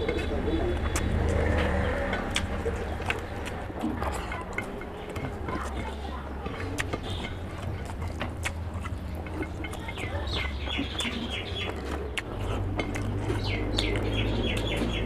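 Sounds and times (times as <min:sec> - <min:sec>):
fingers wiping and licking food: 0:00.0 - 0:15.0
bird chirping: 0:07.0 - 0:15.0.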